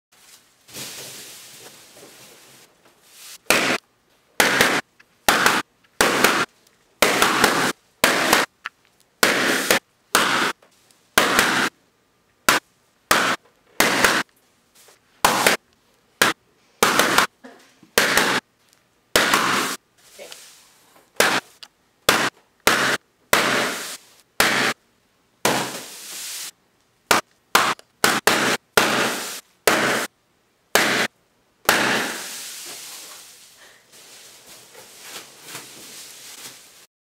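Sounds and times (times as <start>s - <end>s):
balloons popping: 4.4s - 10.6s, 19.1s - 19.8s, 21.2s - 24.8s.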